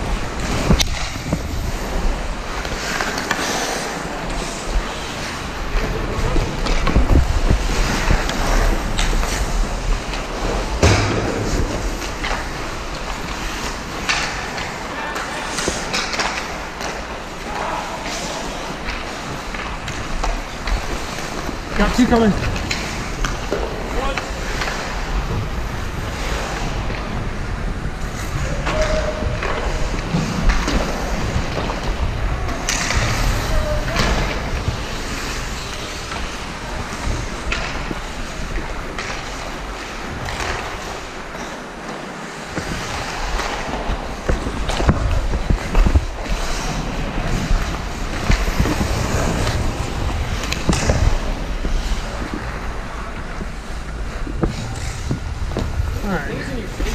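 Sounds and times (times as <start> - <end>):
wind rumble on microphone: 0.0 - 2.7, 4.4 - 13.1
skate blades scraping on ice: 0.0 - 56.9.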